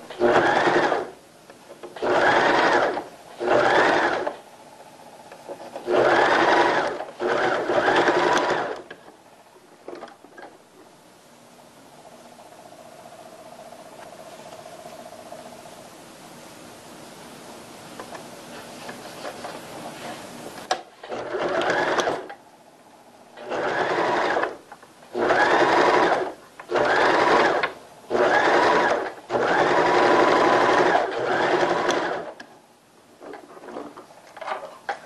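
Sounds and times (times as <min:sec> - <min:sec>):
sewing machine stitching: 0:00.1 - 0:01.1, 0:02.0 - 0:04.4, 0:05.7 - 0:09.0, 0:21.0 - 0:22.3, 0:23.4 - 0:32.4.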